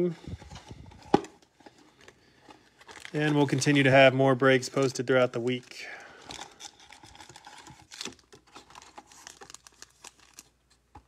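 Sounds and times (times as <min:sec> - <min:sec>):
foil card packs crinkling: 0:01.5 - 0:11.0.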